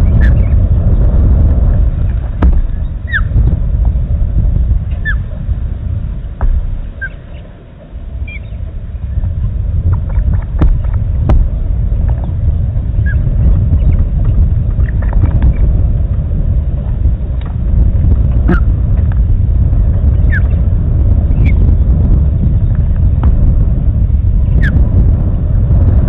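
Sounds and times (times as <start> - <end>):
wind buffeting microphone: 0.0 - 26.0
high bird chirps: 6.9 - 7.4.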